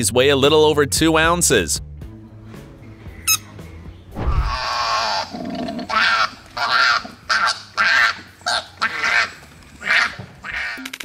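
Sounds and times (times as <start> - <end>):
koalas calling harshly: 4.4 - 10.8.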